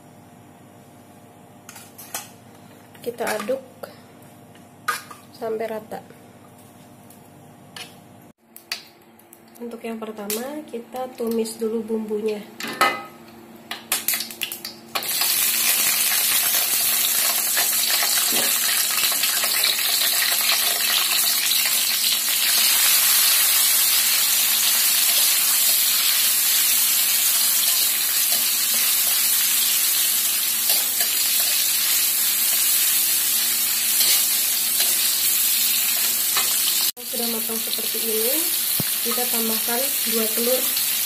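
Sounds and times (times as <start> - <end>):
food sizzling in hot oil: 13.9 - 41.0.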